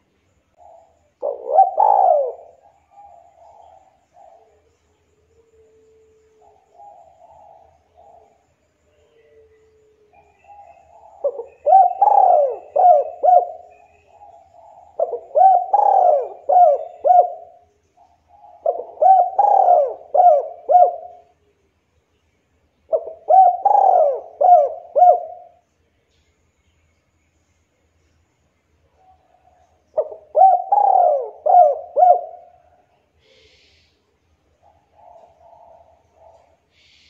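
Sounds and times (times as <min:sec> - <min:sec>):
dove cooing: 0:00.6 - 0:21.4, 0:22.9 - 0:25.6, 0:29.0 - 0:34.0, 0:34.6 - 0:37.0.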